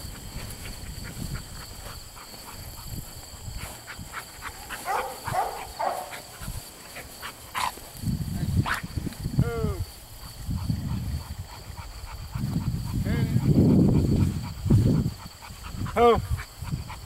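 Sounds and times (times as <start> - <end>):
footsteps through tall grass: 0.0 - 11.6.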